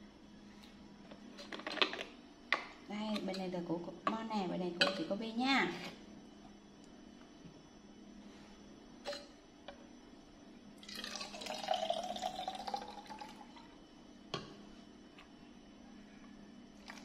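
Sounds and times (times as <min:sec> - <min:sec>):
juice pouring into a bottle: 0:10.8 - 0:13.7.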